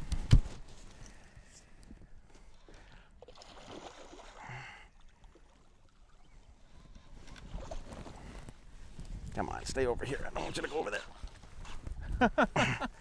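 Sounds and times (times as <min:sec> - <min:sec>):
fish thrashing in water: 0:03.2 - 0:06.1.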